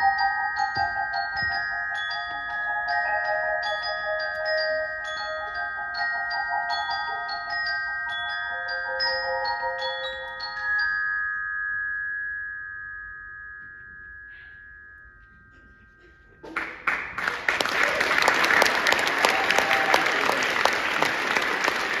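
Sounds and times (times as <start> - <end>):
mallet percussion playing: 0.0 - 17.2, 17.8 - 22.0
audience applause: 16.4 - 22.0.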